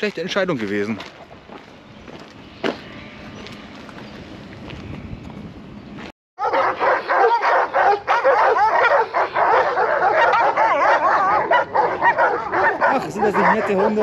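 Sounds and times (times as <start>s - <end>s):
dogs barking and yelping: 6.4s - 14.0s.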